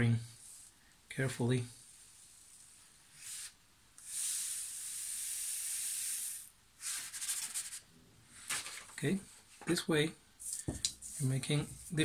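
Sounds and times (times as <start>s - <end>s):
salt pouring into glass jar: 4.0s - 6.5s.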